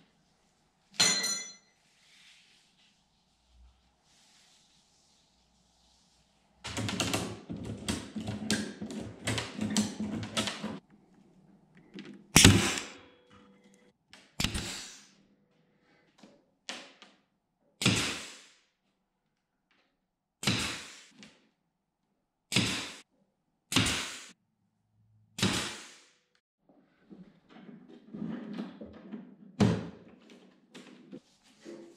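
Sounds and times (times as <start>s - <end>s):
pneumatic brad nailer firing: 12.4s - 12.9s, 14.4s - 15.0s.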